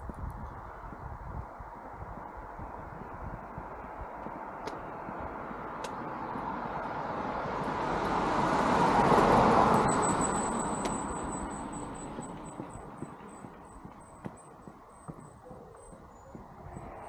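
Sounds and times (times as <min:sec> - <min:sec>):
car passing by: 0:04.3 - 0:14.2.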